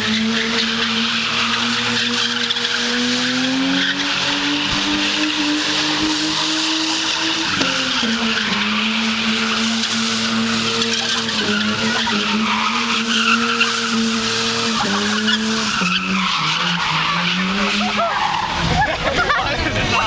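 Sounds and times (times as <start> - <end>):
tyres screeching: 0.0 - 19.0
car engine revving: 0.0 - 20.0.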